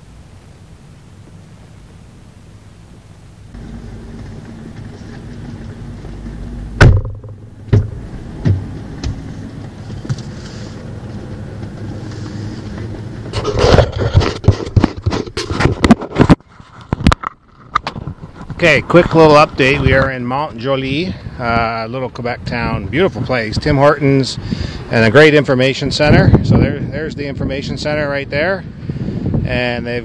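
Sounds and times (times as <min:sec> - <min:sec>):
steady low hum: 0:00.0 - 0:15.4.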